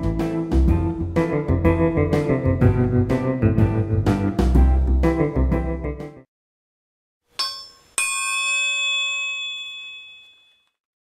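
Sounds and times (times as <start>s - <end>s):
short metallic ding: 7.4s - 10.7s
bell-like clang ringing: 7.4s - 10.8s.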